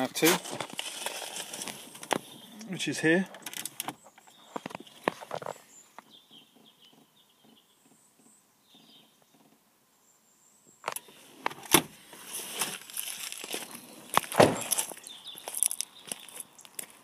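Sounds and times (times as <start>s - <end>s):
rustling handling noise: 0.0s - 2.5s, 10.9s - 17.0s
faint bird chirps: 2.2s - 2.9s, 4.0s - 11.2s.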